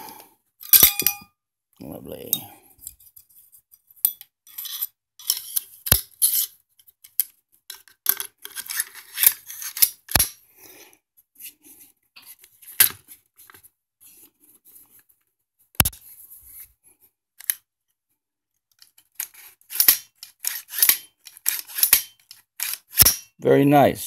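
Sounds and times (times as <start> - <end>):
metal clicks and scraping: 4.0 - 10.4, 17.4 - 17.6, 18.7 - 23.3
sharp metal clacks: 21.7 - 23.4.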